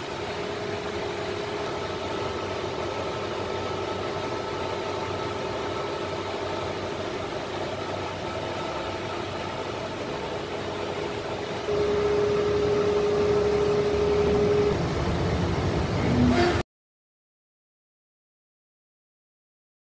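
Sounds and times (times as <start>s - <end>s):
compressor hum and hiss: 0.0s - 16.6s
steady tone: 10.8s - 16.6s.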